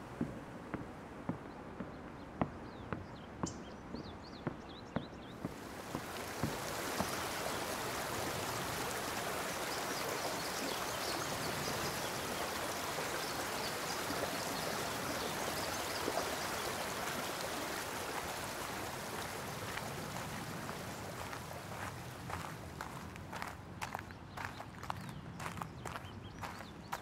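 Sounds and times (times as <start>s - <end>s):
stream flowing over stones: 5.4s - 24.0s.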